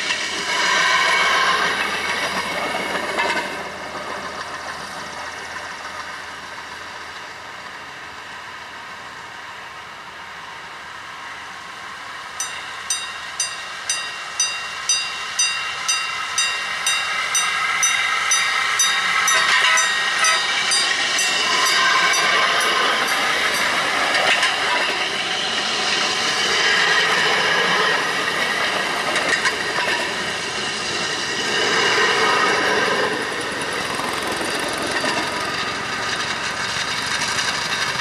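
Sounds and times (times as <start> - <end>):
rail vehicle running on rails: 0.0 - 38.0
crossing bell ringing: 12.4 - 23.9.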